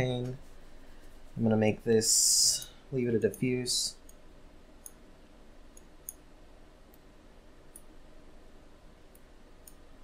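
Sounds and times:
low steady hum: 0.0s - 10.0s
faint mouse clicks: 4.8s - 5.0s, 5.7s - 6.2s, 9.1s - 9.8s.

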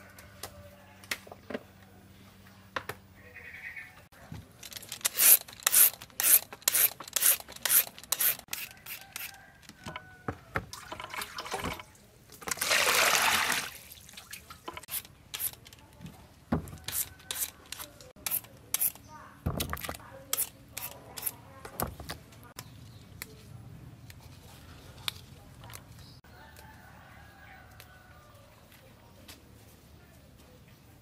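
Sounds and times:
water poured into plastic basin: 10.7s - 14.5s
small splashes: 10.7s - 14.7s.

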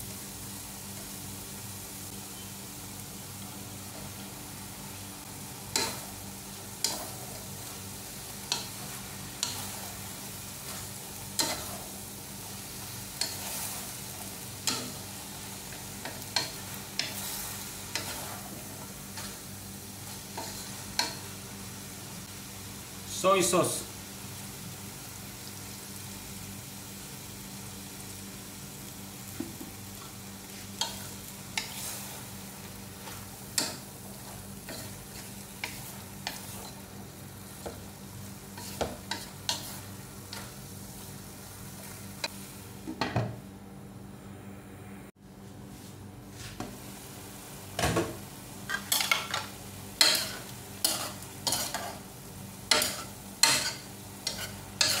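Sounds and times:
vegetables sizzling in a pan: 0.0s - 43.4s, 46.3s - 55.0s
spatula scraping and tapping pan: 10.6s - 11.9s, 16.0s - 19.4s, 20.3s - 21.2s, 33.0s - 36.8s, 38.6s - 40.5s, 48.7s - 52.0s, 52.7s - 55.0s.

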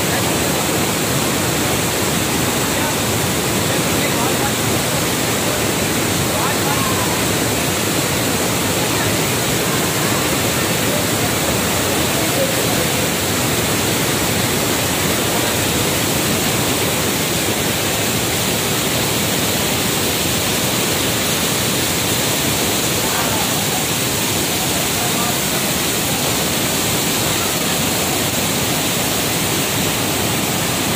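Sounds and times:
waterfall rushing: 0.0s - 30.9s.

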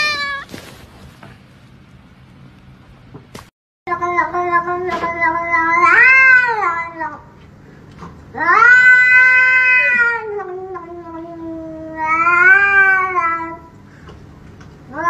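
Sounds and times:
cat yowling meows: 0.0s - 0.5s, 4.4s - 7.2s, 8.4s - 13.7s.

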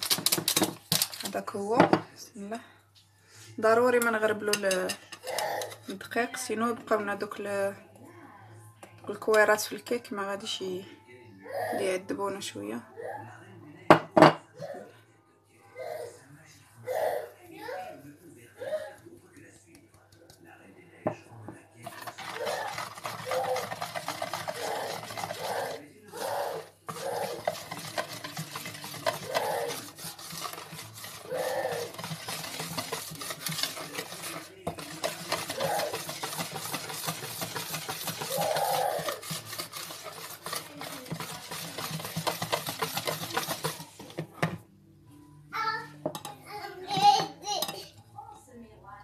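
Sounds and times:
wire whisk scraping plastic bowl: 0.0s - 1.9s, 4.0s - 6.1s, 21.8s - 44.6s, 46.1s - 48.0s.

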